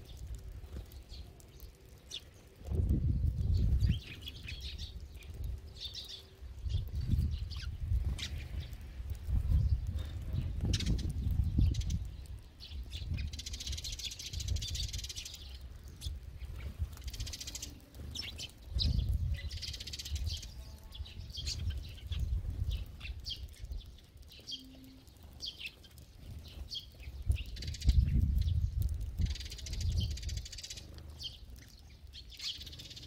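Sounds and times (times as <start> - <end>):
sparrows chirping: 0.0 - 33.0
fluttering wingbeats: 6.7 - 12.1, 12.9 - 31.7.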